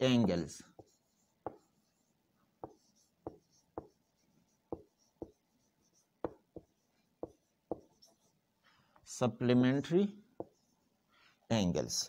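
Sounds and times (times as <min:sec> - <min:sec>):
marker writing on whiteboard: 0:00.0 - 0:08.4, 0:10.4 - 0:10.9.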